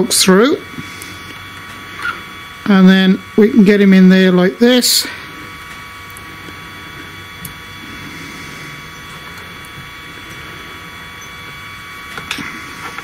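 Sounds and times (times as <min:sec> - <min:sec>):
electrical hum: 0:00.0 - 0:13.0
faint high whine: 0:00.0 - 0:13.0.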